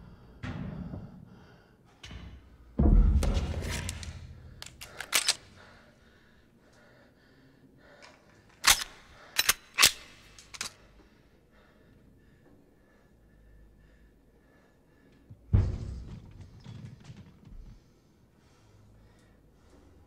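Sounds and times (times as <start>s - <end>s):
handgun metallic clicks: 3.7s - 5.7s, 8.0s - 10.8s.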